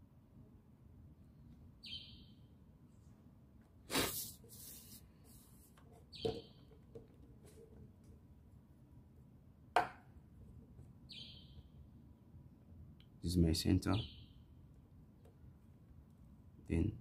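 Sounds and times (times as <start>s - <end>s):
short bird chirp: 1.8s - 2.4s, 11.1s - 11.6s
plastic rubbing slide on paper: 3.9s - 5.8s.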